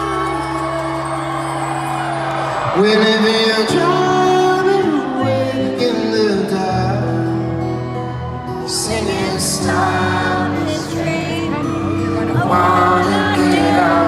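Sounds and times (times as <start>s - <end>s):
man singing: 2.7s - 7.8s, 8.5s - 14.0s.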